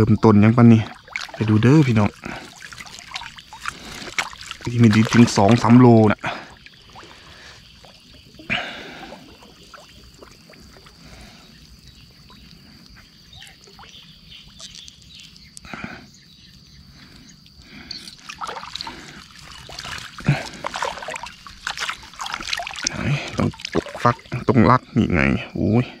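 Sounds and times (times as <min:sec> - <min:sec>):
water splashing and dripping: 0:00.3 - 0:15.8, 0:16.9 - 0:24.6.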